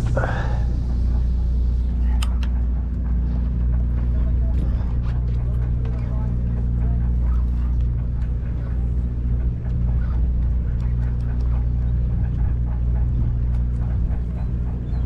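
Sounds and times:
boat engine humming: 0.0s - 15.0s.

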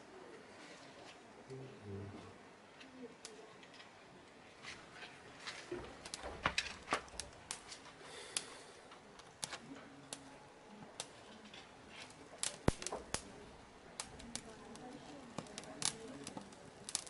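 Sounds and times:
kindling fire crackling: 0.0s - 17.0s
fire snapping and popping: 4.6s - 17.0s.

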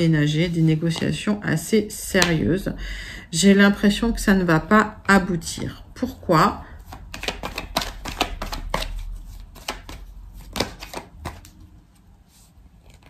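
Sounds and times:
cards being shuffled: 6.8s - 12.0s, 12.8s - 13.0s.

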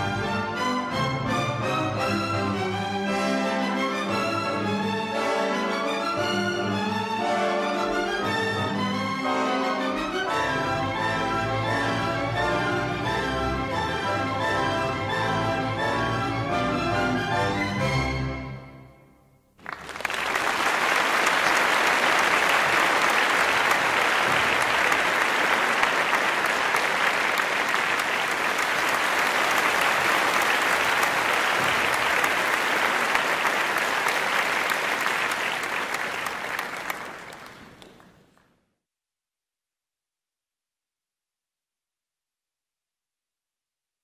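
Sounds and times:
orchestral ballet music: 0.0s - 19.2s, 21.0s - 37.8s
audience applauding: 19.6s - 38.5s.

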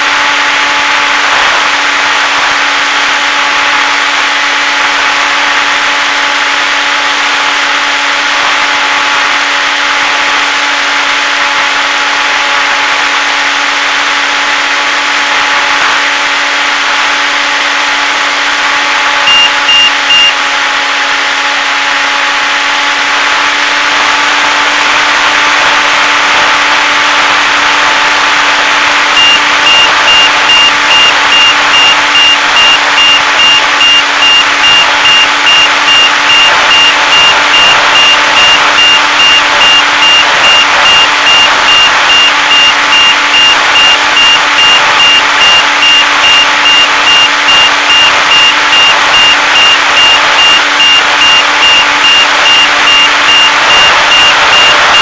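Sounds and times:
electric motor and propeller: 0.0s - 55.0s
high electronic beep: 19.2s - 20.4s, 29.1s - 55.0s.

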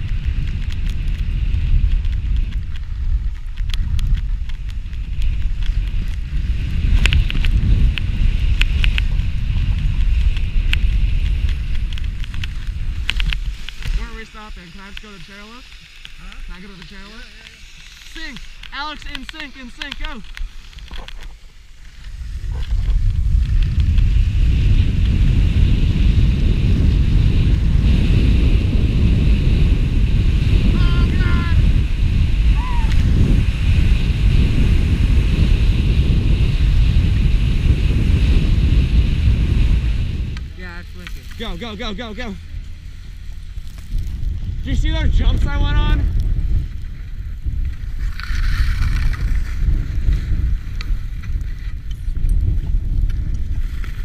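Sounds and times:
wind buffeting microphone: 0.0s - 54.0s
skis hissing over snow: 0.1s - 51.9s, 52.5s - 54.0s
sharp clicks: 10.3s - 21.3s.

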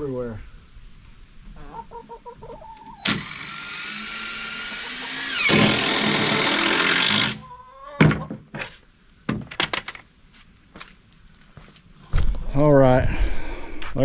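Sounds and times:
power drill driving screw: 3.0s - 7.4s.

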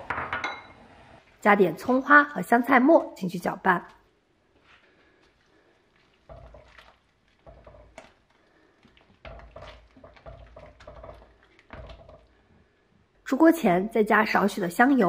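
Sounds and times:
soup swishing in pot: 4.4s - 13.3s.

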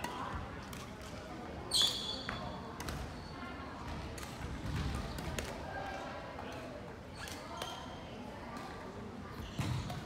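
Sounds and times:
shoe squeak on floor: 1.7s - 3.4s, 7.1s - 8.0s.

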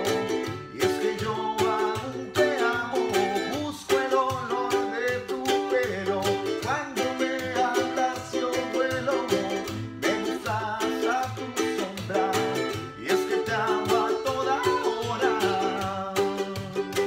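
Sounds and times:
acoustic guitar strumming: 0.0s - 17.0s
man singing: 0.0s - 17.0s
ukulele strumming: 0.0s - 17.0s.

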